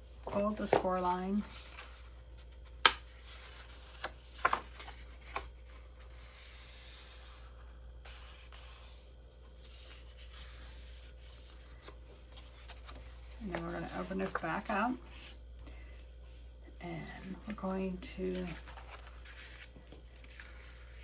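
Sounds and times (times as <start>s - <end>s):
paper crinkling: 17.2s - 21.0s.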